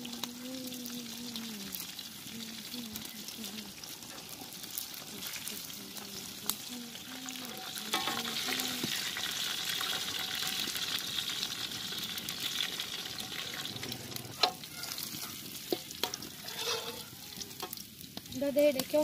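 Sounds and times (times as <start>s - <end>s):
fish sizzling in hot oil: 0.0s - 19.0s
metal utensils clinking on pan: 4.0s - 4.6s, 7.4s - 9.0s, 13.2s - 17.8s.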